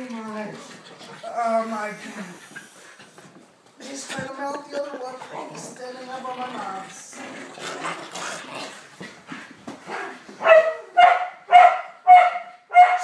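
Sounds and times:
dog barking excitedly: 9.9s - 13.0s.

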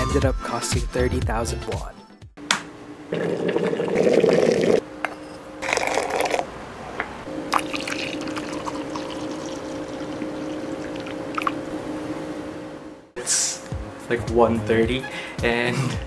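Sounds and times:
faint hum: 2.4s - 14.2s
hot water pouring: 3.1s - 4.8s, 7.5s - 11.7s.

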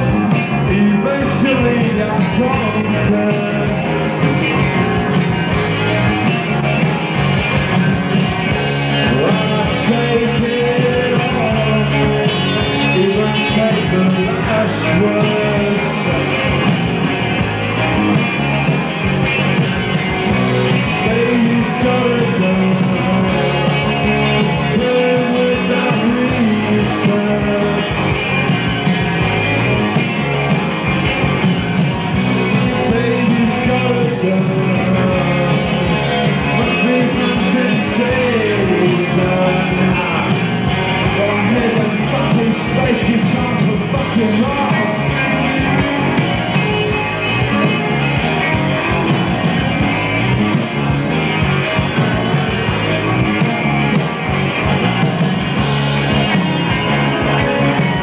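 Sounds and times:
bass guitar: 0.0s - 58.0s
drums: 0.0s - 58.0s
electric guitars: 0.0s - 58.0s
man singing lead vocal: 0.1s - 4.7s, 7.7s - 16.7s, 20.8s - 28.1s, 32.4s - 45.8s.

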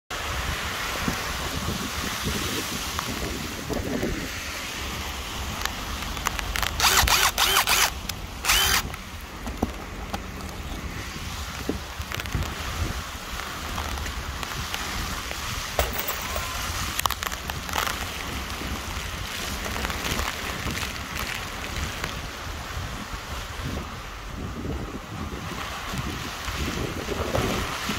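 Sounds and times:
rain and wind hiss: 0.1s - 27.9s
cordless impact driver: 6.6s - 8.9s.

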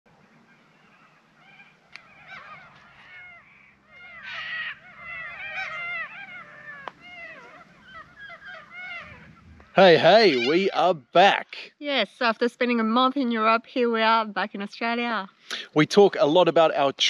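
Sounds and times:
birds calling: 0.2s - 17.0s.

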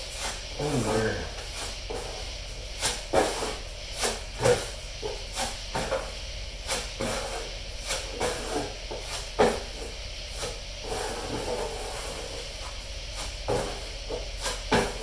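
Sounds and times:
spreader scraping filler on board: 10.8s - 12.3s.

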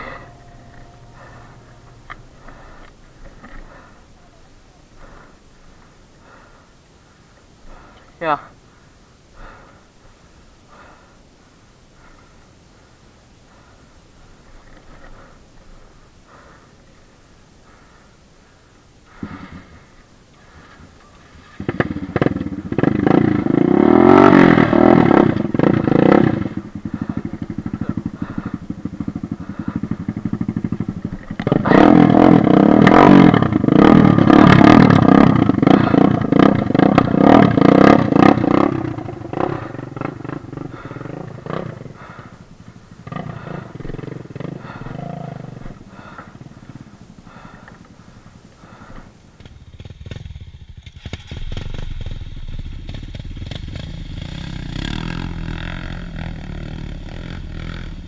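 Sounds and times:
dirt bike engine revving: 0.0s - 4.0s, 21.4s - 58.0s
wheel spinning in loose dirt: 19.1s - 58.0s.

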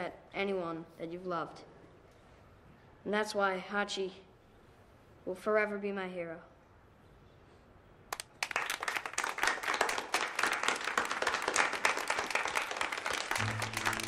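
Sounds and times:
children applauding: 8.2s - 14.0s
music: 13.4s - 14.0s.

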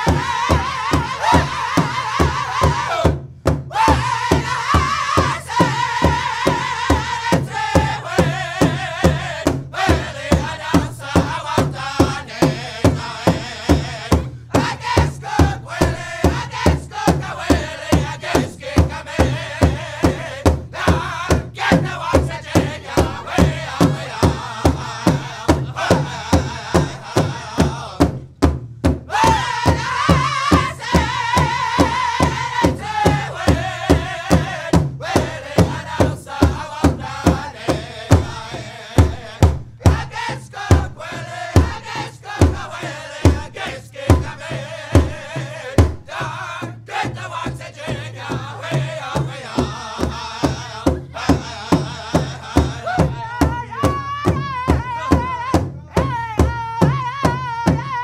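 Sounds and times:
group of voices chanting: 0.0s - 28.1s, 29.1s - 58.0s
steady drum beat: 0.0s - 58.0s.

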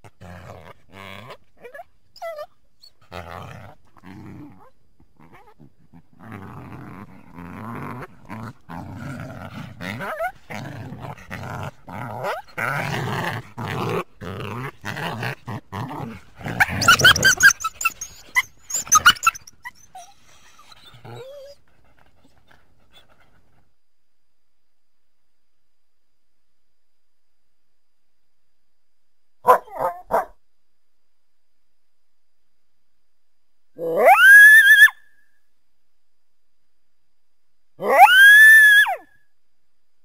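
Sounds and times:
coyote choppy calls: 16.6s - 19.6s
coyote high-pitched yips: 16.7s - 20.1s, 33.8s - 35.1s.

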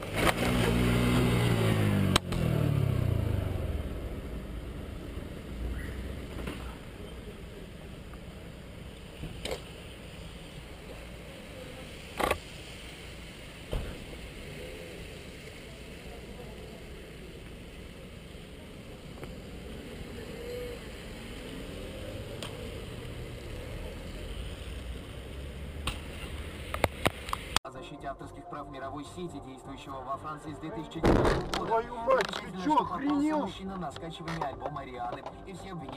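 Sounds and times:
muffled motorcycle rumble: 0.0s - 12.4s.

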